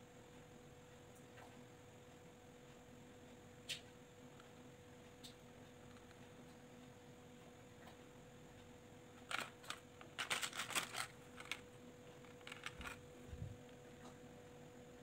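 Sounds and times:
faint electrical hum: 0:00.0 - 0:15.0
plastic beads clicking and rattling: 0:09.3 - 0:11.6, 0:12.2 - 0:13.0.

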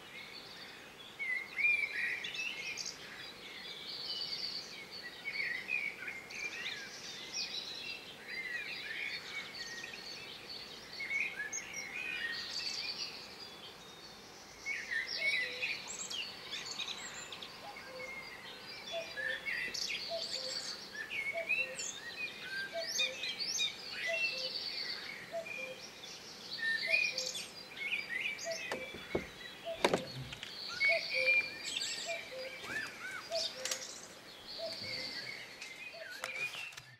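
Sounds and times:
songbirds singing and chirping: 0:00.0 - 0:36.9
short knocks: 0:28.7 - 0:30.4.

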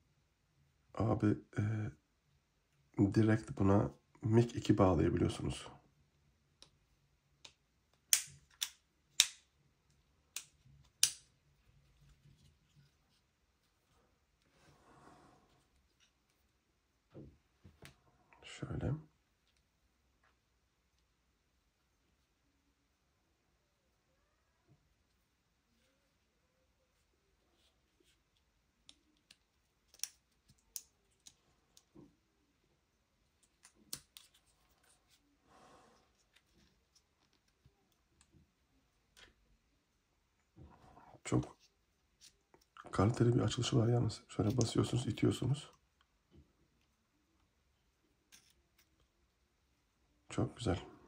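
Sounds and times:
hard plastic clicks and snaps: 0:07.4 - 0:09.5, 0:10.3 - 0:11.3, 0:28.8 - 0:32.0
plastic parts clicking: 0:28.8 - 0:31.9.

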